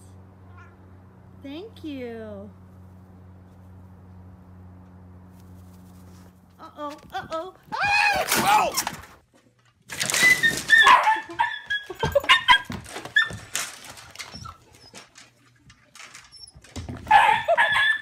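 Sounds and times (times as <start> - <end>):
dog whining and yelping: 10.2 - 13.5, 14.2 - 15.1, 16.3 - 18.0.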